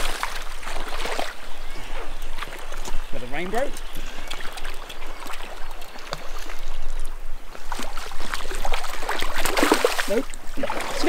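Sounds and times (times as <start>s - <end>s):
stream water running: 0.0s - 11.0s
fish splashing at surface: 7.7s - 11.0s.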